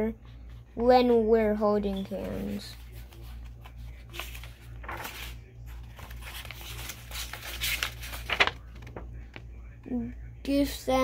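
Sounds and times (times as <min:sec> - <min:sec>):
paper pages rustling: 0:01.8 - 0:09.5.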